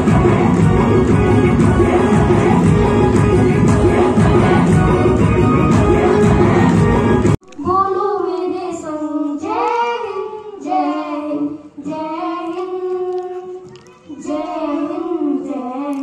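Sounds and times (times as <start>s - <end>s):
girl singing: 7.5s - 16.0s.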